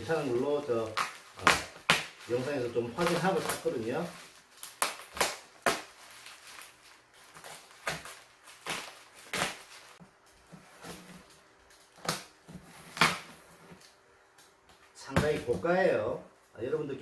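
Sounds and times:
plastic wrapping crinkling and tearing: 0.0 - 10.0.

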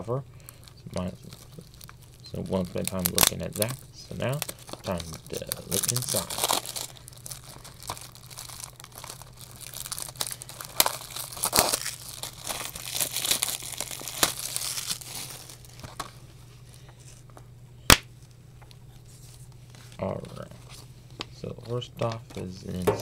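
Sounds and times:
plastic wrap crinkling: 0.4 - 17.3.

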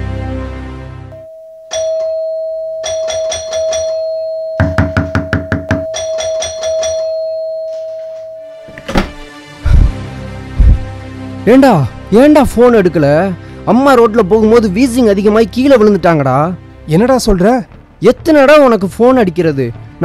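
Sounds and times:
doorbell ringing: 1.1 - 9.2.

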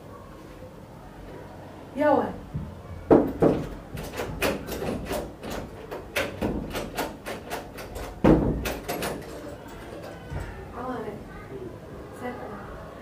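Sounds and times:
irregular knocks and clatters: 2.5 - 10.6.

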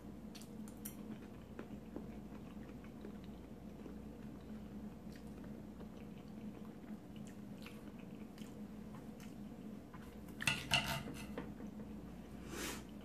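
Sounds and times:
soft chewing: 0.2 - 10.4
knife and fork on plate: 10.4 - 11.4.

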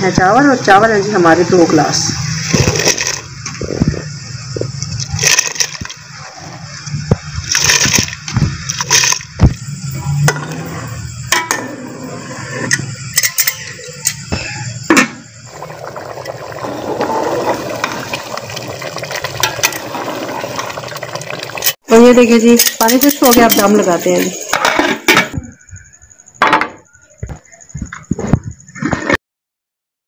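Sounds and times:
metal utensils clinking on pot: 13.1 - 14.2, 21.5 - 25.3
rice poured into water: 15.5 - 21.7
water bubbling: 15.5 - 21.8.

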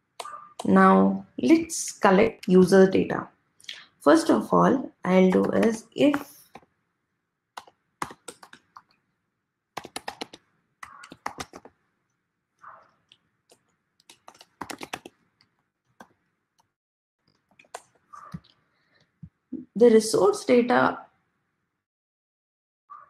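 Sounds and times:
typing on computer keyboard: 5.3 - 6.7, 7.6 - 9.0, 9.8 - 11.7, 13.5 - 15.2.

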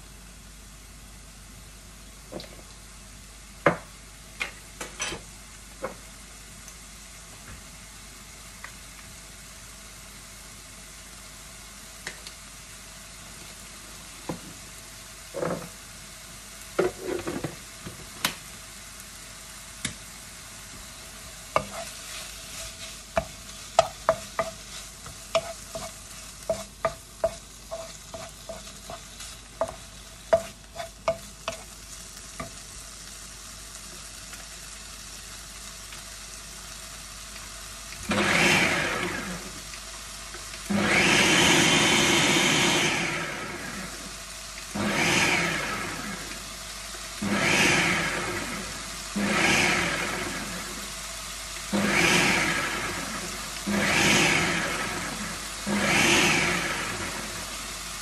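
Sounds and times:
chicken sizzling in a wok: 0.0 - 58.0
wooden spoon scraping a pan: 16.8 - 17.6, 21.5 - 31.7
blender whirring: 38.0 - 39.6, 40.7 - 46.4, 47.2 - 50.9, 51.7 - 57.6.

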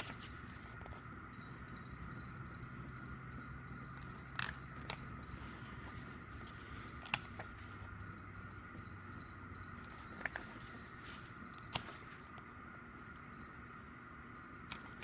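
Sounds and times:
book pages turning: 0.0 - 1.0, 4.3 - 7.9, 10.1 - 12.5
faint steady hum: 0.0 - 15.0.

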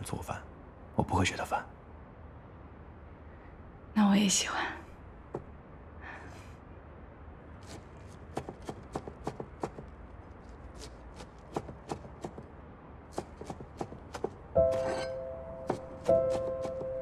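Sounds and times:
cleaver chopping on wooden board: 7.7 - 9.9, 11.2 - 12.5
soft background music: 14.5 - 17.0.

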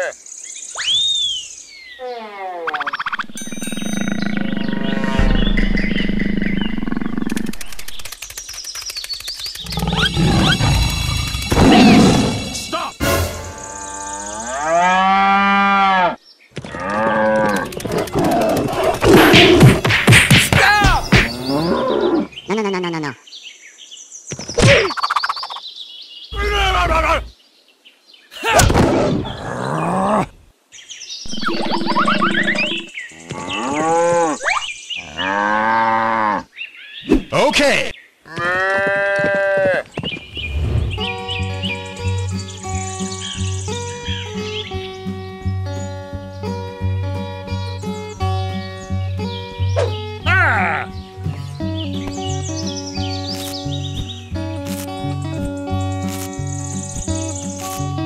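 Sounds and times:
tiger growling and roaring: 3.2 - 7.8, 9.6 - 12.6, 16.7 - 19.9, 28.8 - 30.4
fast run of clicks: 7.1 - 10.0, 17.4 - 19.2.

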